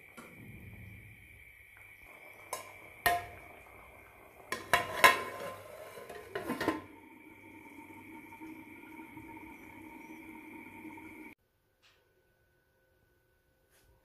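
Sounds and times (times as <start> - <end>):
metal cookware clanking: 2.4 - 7.0
metal lid set on pot: 4.5 - 6.8.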